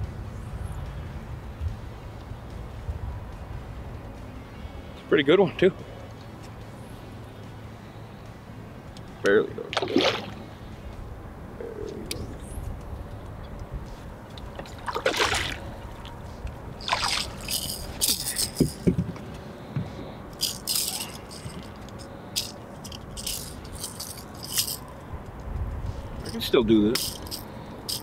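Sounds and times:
fish splashing at water surface: 9.7 - 10.4, 14.6 - 16.1, 16.8 - 18.3.

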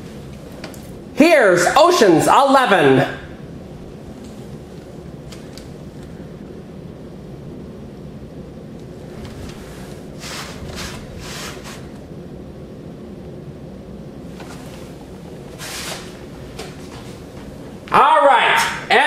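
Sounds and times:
low background hum: 0.0 - 19.0
cassette sleeve scraping rustles: 9.1 - 12.0, 14.3 - 17.5.

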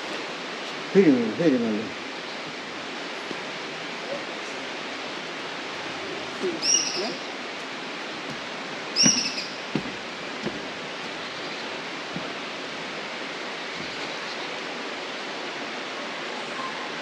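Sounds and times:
rain falling: 0.0 - 17.0
soft knocks: 8.2 - 10.8, 12.1 - 12.4.

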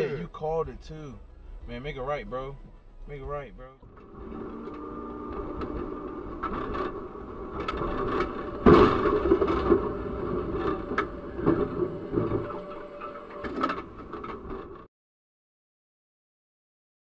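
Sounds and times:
metal scraping and knocks: 3.8 - 14.9
tram humming on rails: 3.8 - 14.9
tram crashing into car: 6.4 - 14.8.

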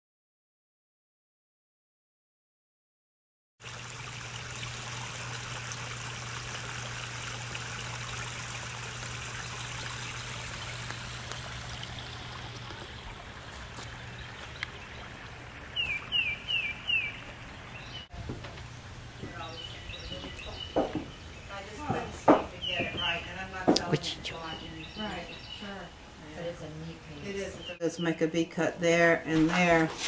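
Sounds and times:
water trickling into pond: 3.6 - 26.5
bird chirping: 15.8 - 18.1, 18.7 - 25.8.

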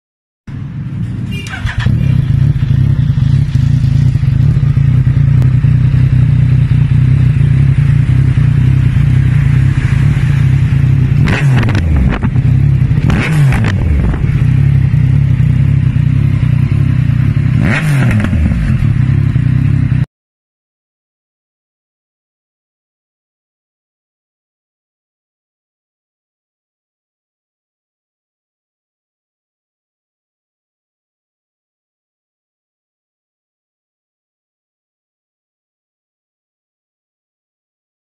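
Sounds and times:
motorcycle engine idling: 1.3 - 11.2, 13.9 - 17.7, 18.4 - 20.0
engine revving: 1.4 - 20.0.

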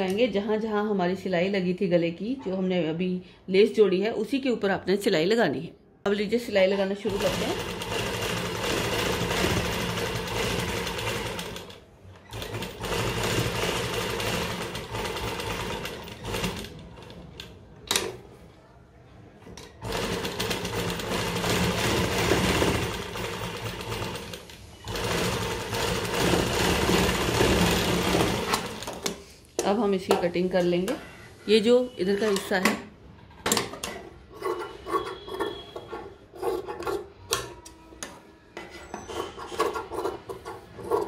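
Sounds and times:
sewing machine stitching: 7.0 - 18.1, 19.8 - 29.1.

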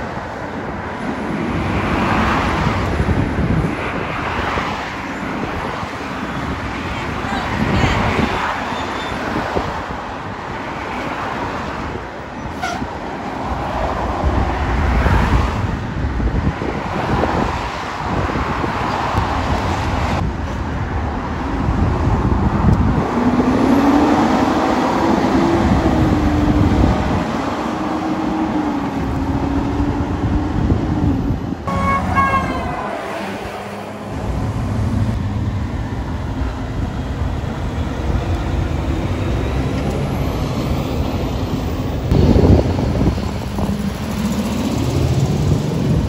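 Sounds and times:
road traffic passing: 0.0 - 46.0
vehicle horn tone: 12.6 - 12.9, 31.7 - 33.4
vehicle engine drone: 20.2 - 46.0.

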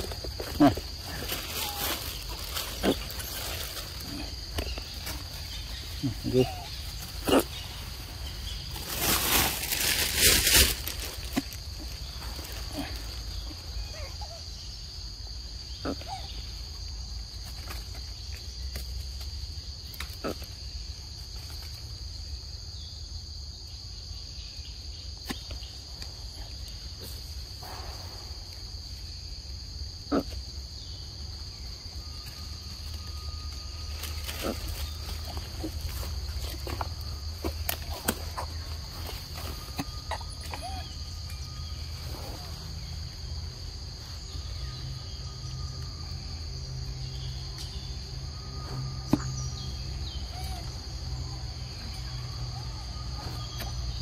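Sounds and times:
insects droning: 0.0 - 54.0.

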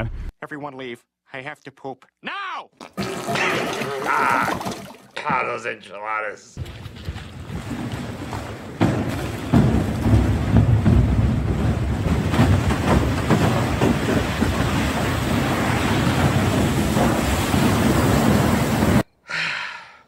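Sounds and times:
water rushing down rock face: 2.9 - 5.2, 6.6 - 19.0.

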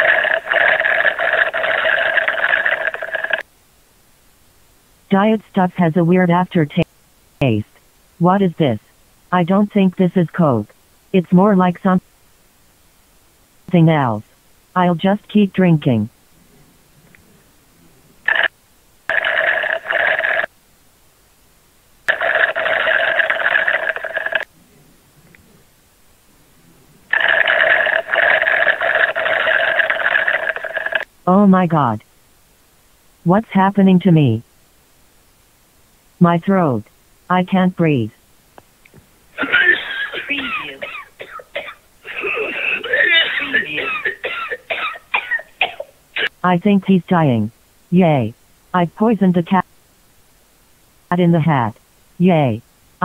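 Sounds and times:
slurping gulping drinking: 27.1 - 31.0.

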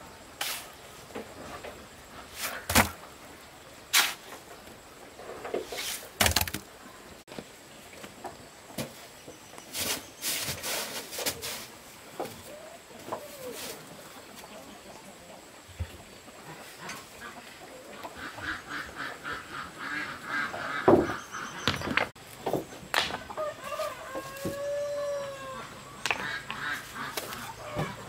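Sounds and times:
waterfowl calling: 16.4 - 22.0, 23.3 - 28.0.

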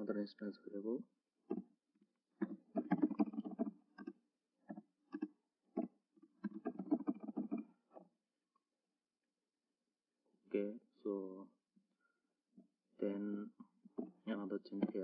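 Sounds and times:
typing on a computer keyboard: 2.4 - 7.6.

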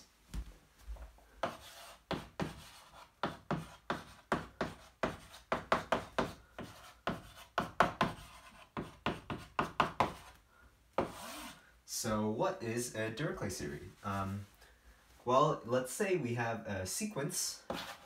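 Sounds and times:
chalk tapping and scraping: 1.4 - 10.4, 11.0 - 11.6, 17.6 - 18.0.

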